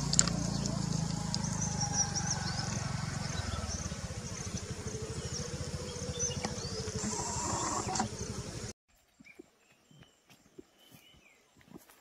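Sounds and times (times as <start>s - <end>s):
low pulsing rumble: 0.0s - 8.7s
high bird chirps: 3.3s - 8.4s.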